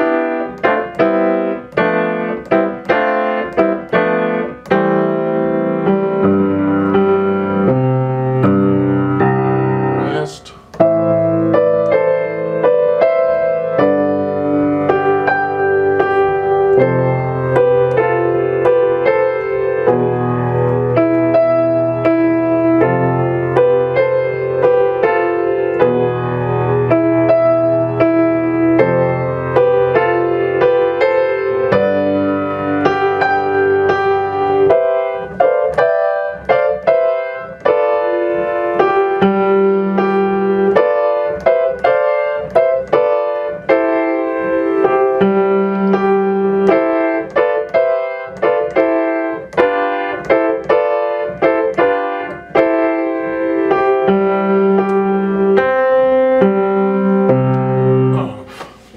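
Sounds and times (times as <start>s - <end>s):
grand piano playing: 0.0s - 58.5s
metronome clicking: 0.4s - 5.0s, 6.6s - 7.2s, 45.2s - 52.9s.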